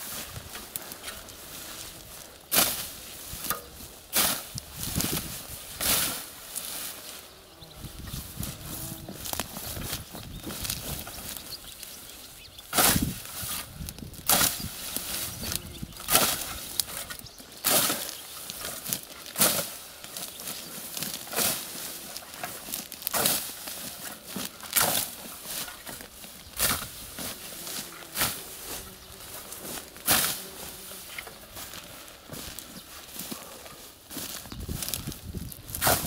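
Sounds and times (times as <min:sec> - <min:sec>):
scythe swishing through nettles: 0:00.0 - 0:07.2, 0:12.7 - 0:36.0.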